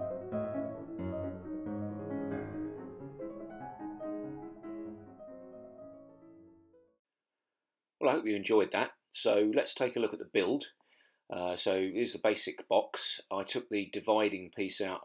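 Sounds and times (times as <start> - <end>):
piano music: 0.0 - 7.0.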